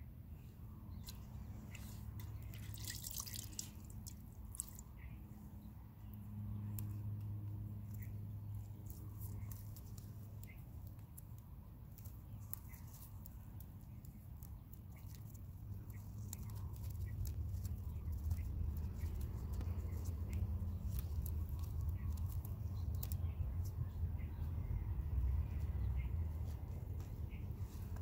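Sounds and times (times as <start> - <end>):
string clicks and cloth rustles: 25.3 - 28.0.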